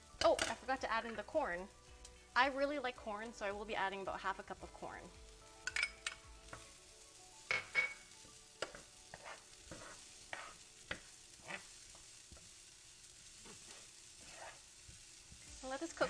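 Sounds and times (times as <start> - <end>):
faint sizzle: 0.0 - 16.0
utensil scraping frying pan: 7.5 - 12.6, 13.2 - 16.0.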